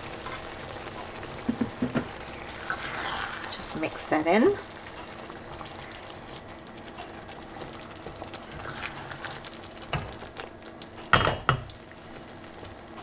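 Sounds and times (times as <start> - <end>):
curry sizzling in a pan: 0.0 - 13.0
spoon stirring in a pan: 0.0 - 13.0
knock against a pan: 1.4 - 2.1, 11.1 - 11.7.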